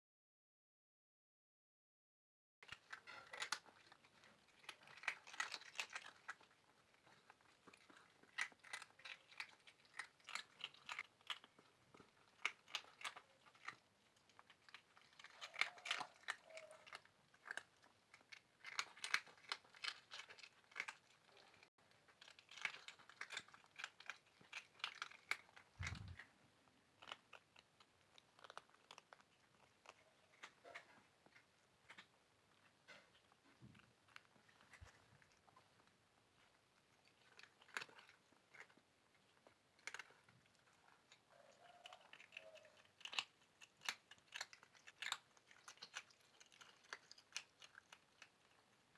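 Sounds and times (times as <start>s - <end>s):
cats crunching dry snack: 2.6s - 48.9s.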